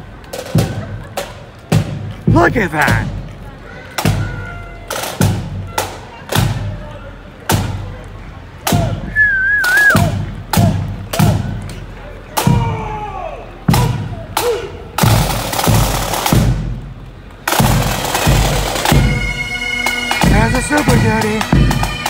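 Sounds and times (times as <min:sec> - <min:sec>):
snare drum strokes and rolls: 0:00.3 - 0:03.3, 0:04.0 - 0:06.8, 0:07.4 - 0:07.9, 0:08.6 - 0:11.8, 0:12.4 - 0:13.0, 0:13.7 - 0:22.0
bass drum beats: 0:01.7 - 0:03.3
bagpipes playing: 0:17.6 - 0:22.0.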